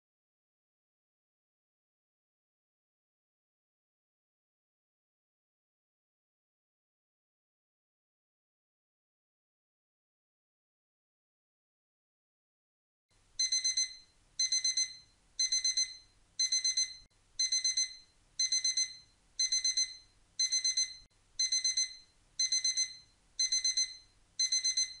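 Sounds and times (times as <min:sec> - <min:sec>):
timer alarm beeping: 0:13.4 - 0:25.0.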